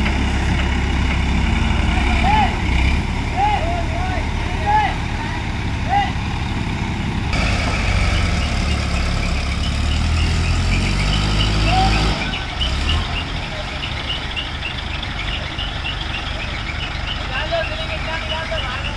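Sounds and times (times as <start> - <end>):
crane diesel engine running: 0.0 - 18.9.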